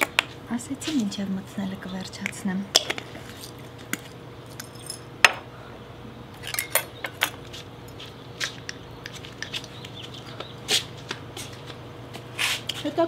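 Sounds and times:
faint steady hum: 0.0 - 13.0
glass jar clicking and clinking: 6.4 - 7.4.

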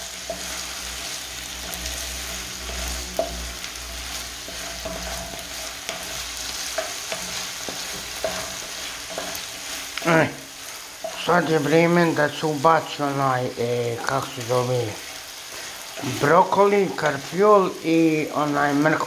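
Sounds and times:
spatula scraping a pan: 0.0 - 17.8
meat sizzling in a frying pan: 0.0 - 19.0
spatula tapping a pan: 2.6 - 10.1.

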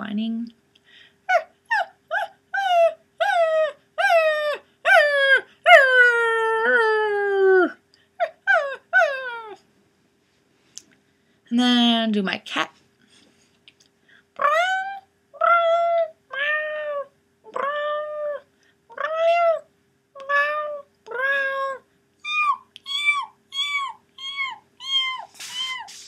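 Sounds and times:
person imitating cat meows: 14.4 - 19.6, 20.2 - 26.0.

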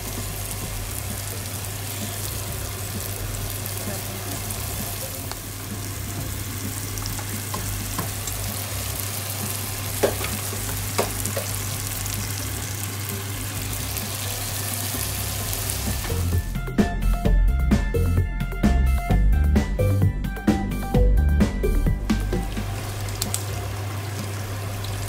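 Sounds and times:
vegetables sizzling in oil: 0.0 - 16.6, 22.4 - 25.0.

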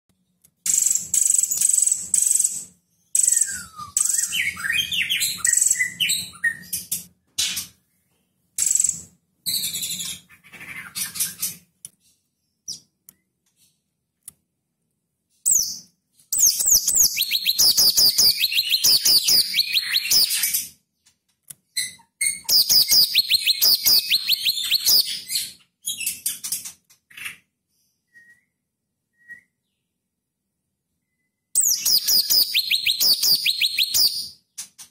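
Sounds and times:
bird singing rapid high notes: 16.4 - 20.5, 22.3 - 25.6, 31.6 - 34.4.

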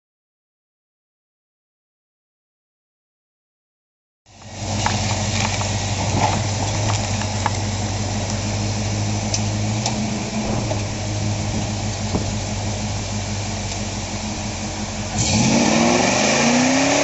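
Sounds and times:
car engine idling: 4.3 - 17.0.

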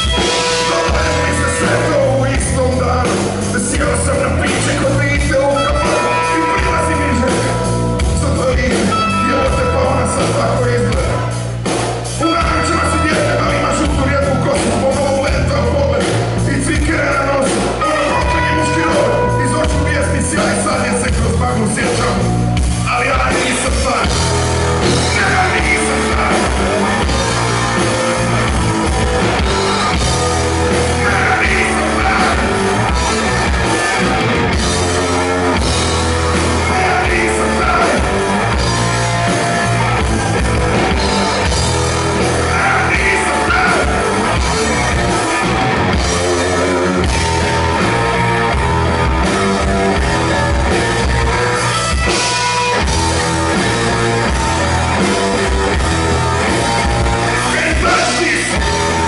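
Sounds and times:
live rock band playing: 0.0 - 59.0
person singing: 0.1 - 11.3, 12.2 - 22.2, 24.8 - 28.2, 30.7 - 33.0, 36.0 - 38.7, 42.2 - 44.6, 57.3 - 59.0.

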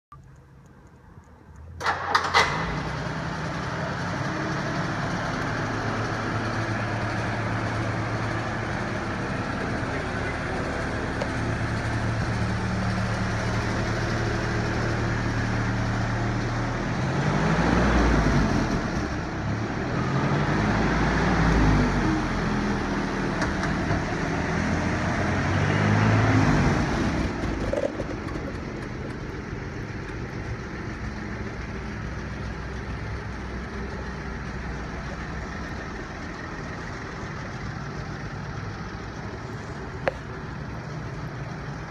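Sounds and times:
car engine starting and idling: 0.1 - 41.9
engine revving: 1.8 - 29.2.

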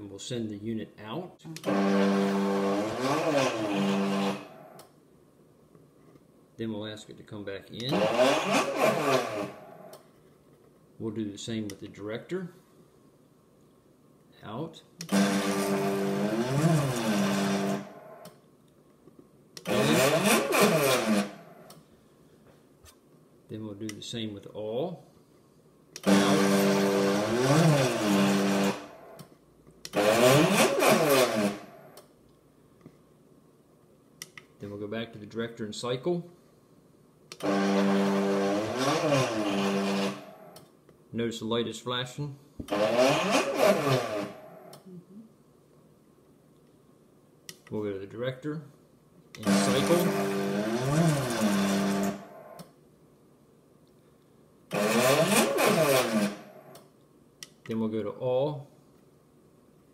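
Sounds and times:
stepper motor whining: 1.6 - 4.8, 7.9 - 10.0, 15.1 - 18.3, 19.6 - 21.5, 26.0 - 29.1, 29.9 - 31.8, 37.4 - 40.6, 49.4 - 52.6, 54.7 - 56.8.

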